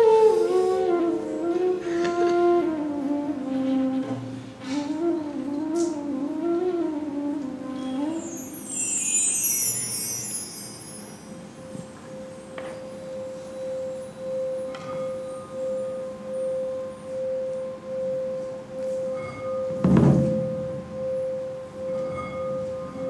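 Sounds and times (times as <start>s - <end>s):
sustained ringing tone: 8.3s - 23.0s.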